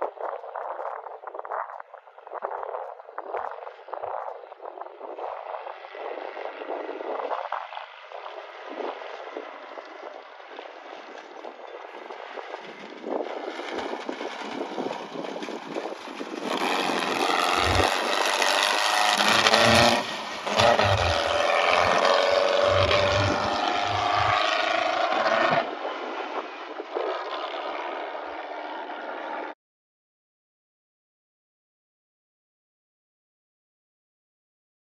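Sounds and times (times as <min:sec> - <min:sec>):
race car engine revving: 0:16.2 - 0:25.8.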